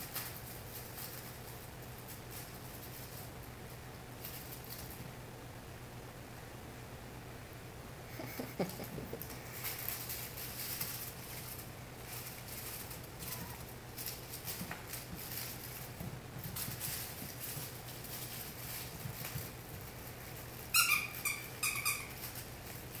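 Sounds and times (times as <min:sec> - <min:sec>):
puppies scratching on a blanket: 0:00.0 - 0:05.1, 0:08.4 - 0:23.0
squeaky toy squeaks: 0:20.7 - 0:22.2.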